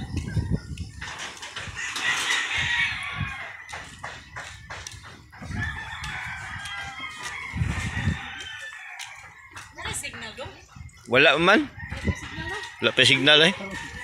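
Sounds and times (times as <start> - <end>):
rooster crowing: 1.7 - 4.0, 5.4 - 10.0, 11.6 - 14.0.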